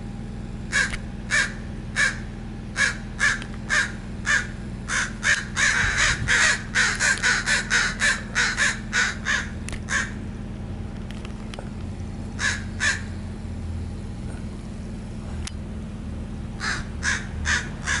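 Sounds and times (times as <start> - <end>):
crows cawing: 0.7 - 10.2, 12.4 - 13.2, 16.6 - 18.0.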